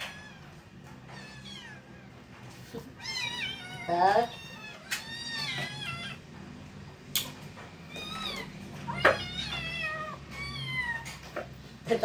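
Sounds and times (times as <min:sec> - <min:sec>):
kittens meowing: 0:00.0 - 0:02.3, 0:02.9 - 0:06.3, 0:07.8 - 0:11.3.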